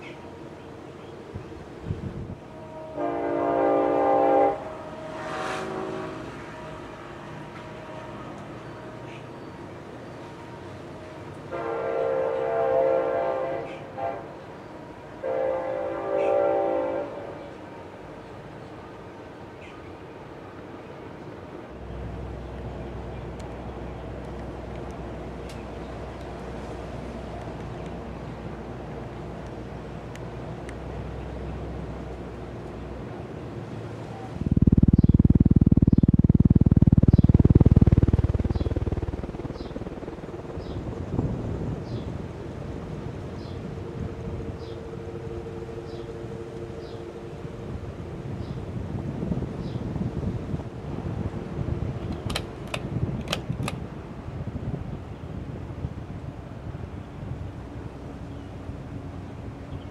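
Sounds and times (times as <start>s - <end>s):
train horn blasts: 2.4s - 18.3s, 44.0s - 48.6s
ceiling fan draft buffeting microphone: 23.2s - 59.6s.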